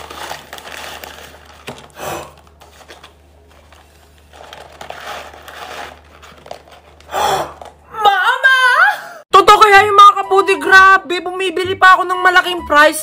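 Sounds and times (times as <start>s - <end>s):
cardboard rustling: 0.0s - 7.8s
paper crinkling: 0.0s - 7.8s.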